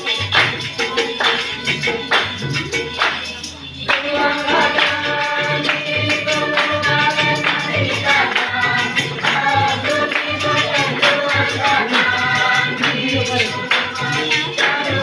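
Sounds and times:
jingling percussion: 0.0 - 15.0
group singing choir-style: 3.9 - 15.0.

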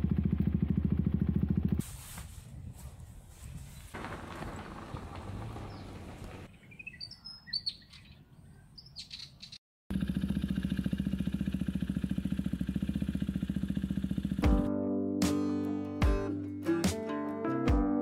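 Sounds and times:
motorcycle engine idling: 0.0 - 1.8, 9.9 - 14.7
birds chirping: 2.9 - 9.6.

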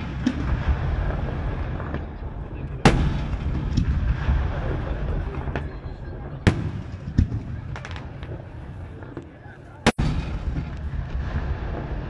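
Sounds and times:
fainter firework pops: 6.5 - 11.9.

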